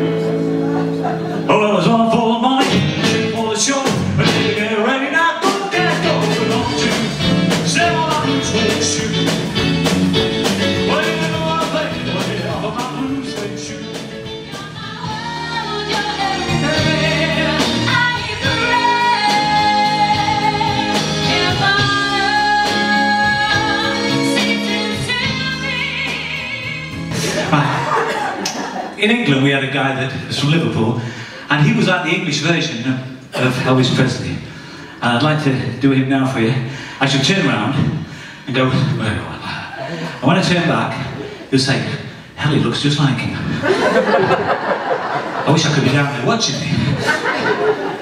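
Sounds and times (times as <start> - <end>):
rock and roll band playing: 0.0 - 29.0, 43.6 - 48.0
lead singer singing: 0.7 - 9.7, 10.5 - 28.2.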